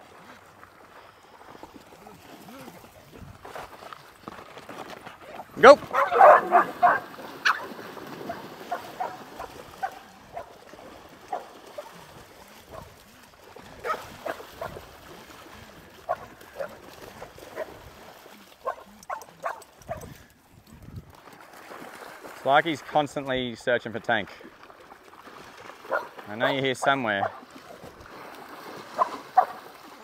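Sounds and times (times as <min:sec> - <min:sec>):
dogs splashing in water: 0:00.0 - 0:23.4, 0:24.3 - 0:30.0
dogs barking and yipping: 0:05.8 - 0:10.6, 0:11.3 - 0:12.0, 0:12.7 - 0:13.0, 0:13.8 - 0:14.8, 0:16.1 - 0:17.8, 0:18.6 - 0:20.3, 0:25.9 - 0:26.6, 0:29.0 - 0:29.6.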